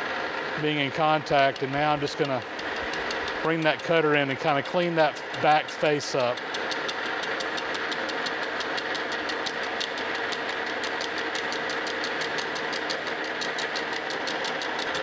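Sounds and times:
metal lathe humming: 0:00.0 - 0:15.0
cutter ticking on metal: 0:01.0 - 0:15.0.

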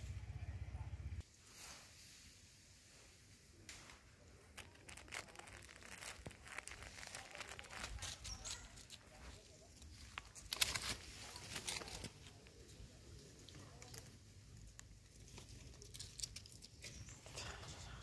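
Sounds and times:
dry leaves crackling and rustling: 0:03.8 - 0:18.0.

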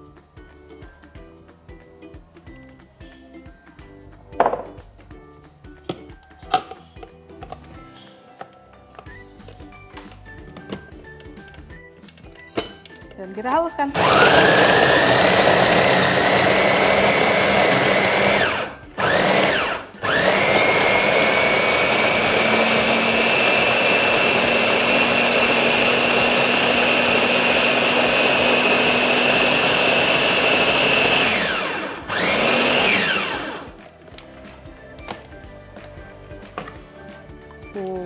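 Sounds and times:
food chopper motor whining: 0:13.9 - 0:33.9.

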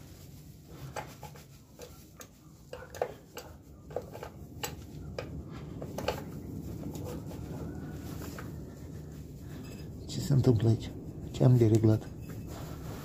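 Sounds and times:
low steady rumble: 0:00.0 - 0:13.0.

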